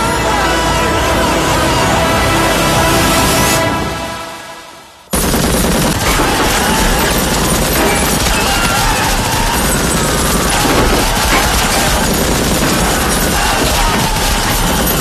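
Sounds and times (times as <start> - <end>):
music: 0.0 - 5.2, 10.5 - 15.0
heavy machine-gun fire: 5.1 - 15.0.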